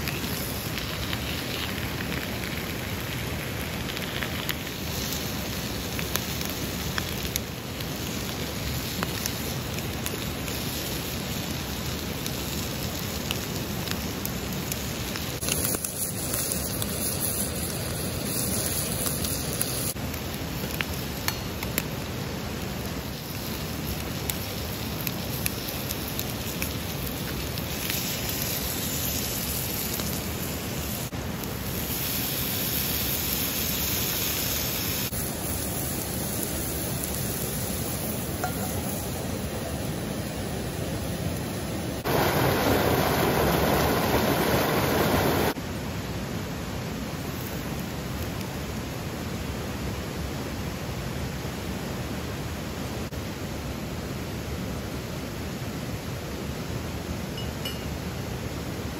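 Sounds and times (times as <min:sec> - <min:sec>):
small pops and crackles: 0:00.0 - 0:10.8, 0:12.2 - 0:22.0
bacon and eggs sizzling: 0:00.0 - 0:22.0, 0:22.6 - 0:45.6.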